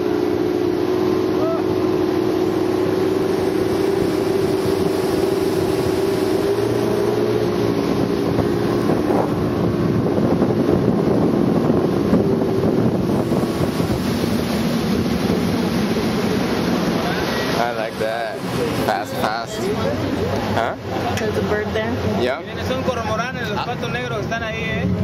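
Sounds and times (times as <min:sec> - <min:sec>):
motorboat engine droning: 0:00.0 - 0:25.0
water rushing past hull: 0:00.0 - 0:25.0
wind buffeting microphone: 0:01.7 - 0:20.6.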